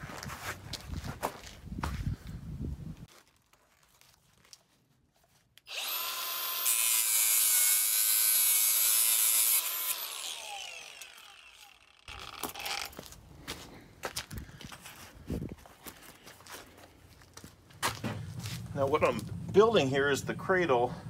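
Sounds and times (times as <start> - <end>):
angle grinder cutting steel: 5.6 - 13.0.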